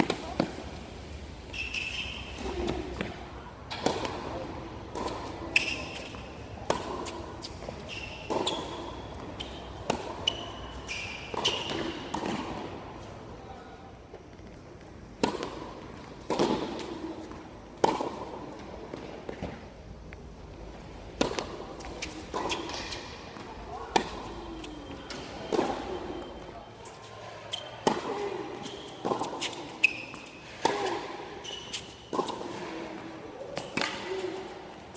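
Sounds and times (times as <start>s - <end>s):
tennis balls struck by rackets: 0.0s - 0.8s, 1.5s - 10.6s, 11.2s - 12.8s, 15.1s - 19.6s, 21.1s - 26.0s, 27.4s - 34.6s
balls bouncing on hard court: 1.5s - 10.6s, 14.4s - 19.6s, 21.2s - 24.6s.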